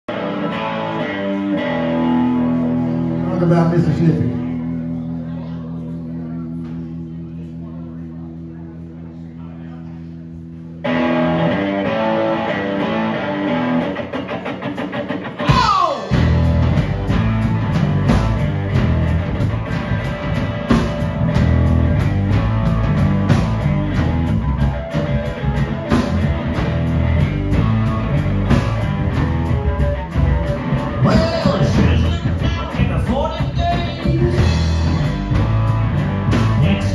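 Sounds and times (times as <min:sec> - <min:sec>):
bass guitar: 0:00.0 - 0:36.9
electric guitar riff: 0:00.1 - 0:08.9, 0:10.5 - 0:36.9
drum kit beat: 0:14.0 - 0:36.9.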